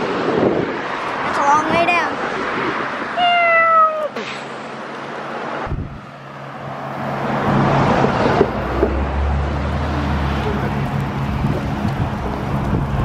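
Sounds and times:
wind on microphone: 0.0s - 3.4s, 5.5s - 6.2s, 7.2s - 13.0s
road traffic on a bridge: 0.0s - 13.0s
person calling out: 3.2s - 4.2s
vehicle approaching: 4.0s - 13.0s.

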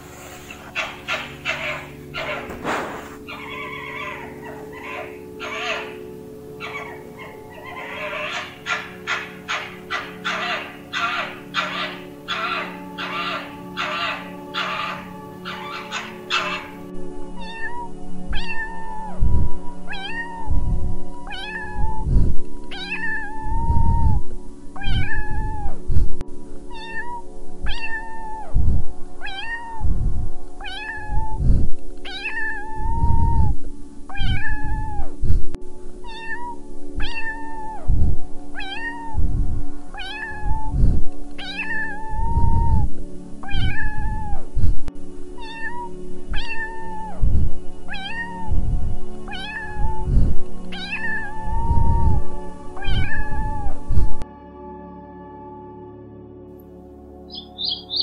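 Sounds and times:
background music: 0.0s - 58.0s
cat meowing: 0.7s - 6.0s, 6.6s - 16.8s, 17.4s - 19.3s, 19.9s - 20.6s, 21.2s - 22.1s, 22.7s - 24.2s, 24.8s - 25.8s, 26.7s - 28.6s, 29.2s - 29.9s, 30.6s - 35.2s, 36.0s - 44.6s, 45.4s - 48.7s, 49.3s - 54.2s.

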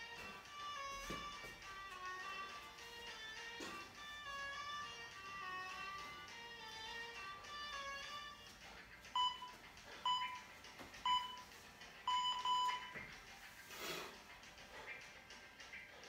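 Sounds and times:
faint background music: 0.0s - 16.0s
short electronic beeps: 9.2s - 9.5s, 10.1s - 10.4s, 11.0s - 11.4s, 12.1s - 12.9s.

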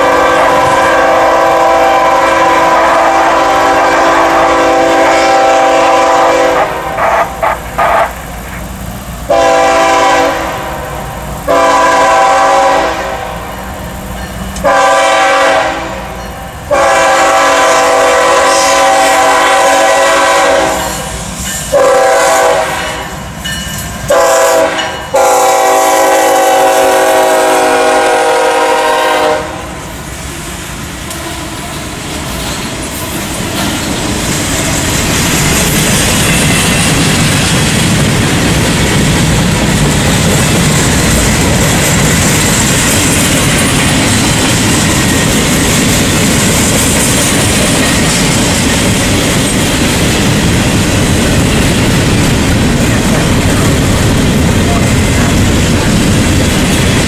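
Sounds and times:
locomotive horn blasts: 0.0s - 8.1s, 9.3s - 13.6s, 14.6s - 23.2s, 24.1s - 29.9s
freight cars rumbling and clacking: 6.6s - 11.6s, 13.0s - 14.7s, 29.9s - 57.0s.

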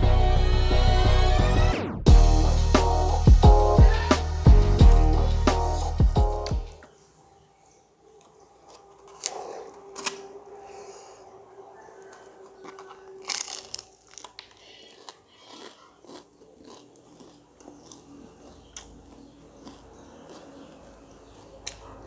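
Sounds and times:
crunchy chewing: 8.1s - 10.9s, 11.7s - 22.0s
crunchy bite: 12.6s - 22.0s.

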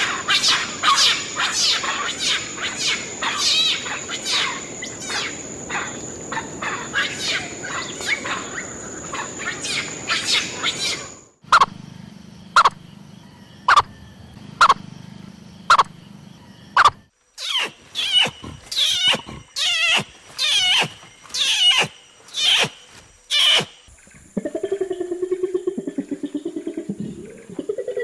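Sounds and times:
orangutan high wavering cries: 0.0s - 11.6s, 17.4s - 28.0s
frog calling: 0.0s - 11.8s, 12.5s - 14.9s, 15.6s - 28.0s.

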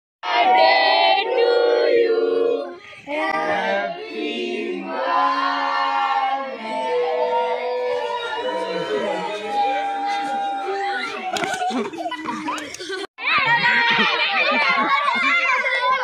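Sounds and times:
voices singing without instruments: 0.2s - 11.5s.

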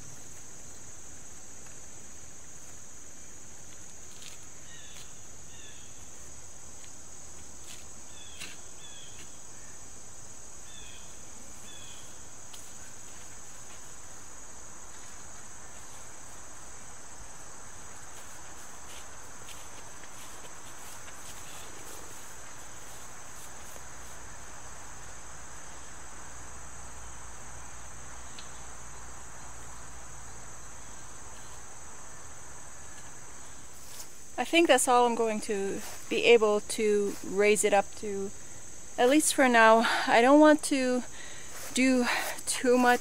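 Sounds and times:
insect chorus trilling: 0.0s - 43.0s
rustling: 17.3s - 25.2s.

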